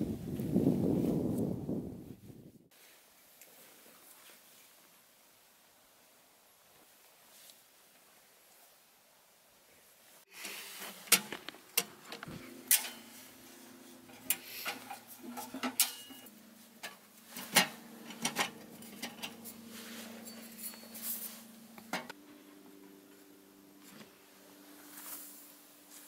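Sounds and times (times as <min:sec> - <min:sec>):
metal stove parts clanking: 0:10.4 - 0:13.4, 0:14.0 - 0:22.1.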